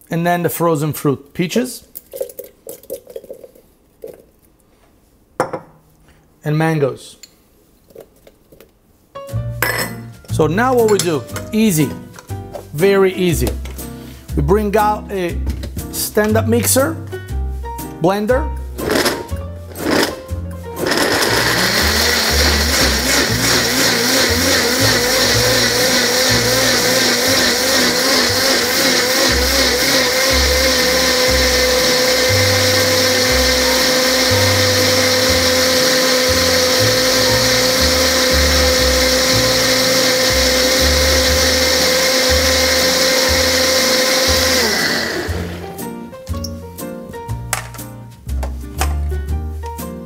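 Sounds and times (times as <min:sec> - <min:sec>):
blender motor running: 0:18.8 - 0:20.2, 0:20.8 - 0:45.8.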